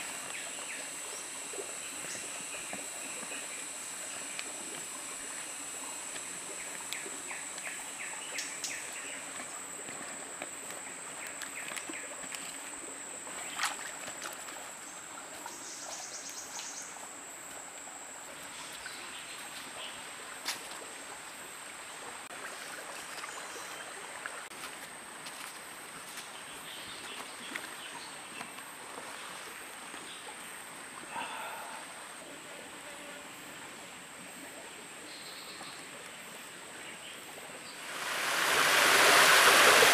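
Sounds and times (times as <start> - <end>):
stream running over rocks: 0.0 - 15.4, 37.7 - 39.9
high-pitched whine: 0.0 - 19.5, 37.8 - 39.9.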